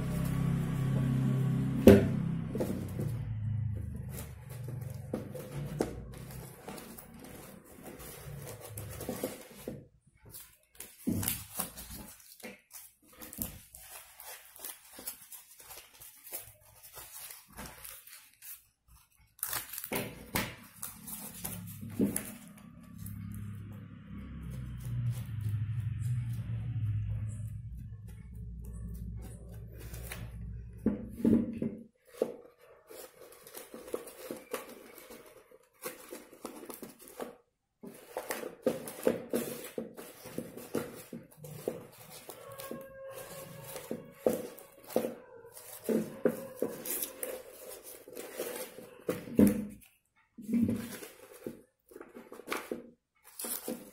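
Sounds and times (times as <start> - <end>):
dry corn husk crackling: 10.6 - 30.4.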